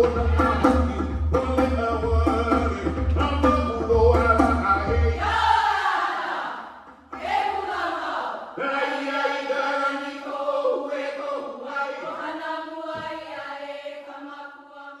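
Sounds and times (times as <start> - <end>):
voices chanting in unison: 0.0 - 1.1, 4.4 - 15.0.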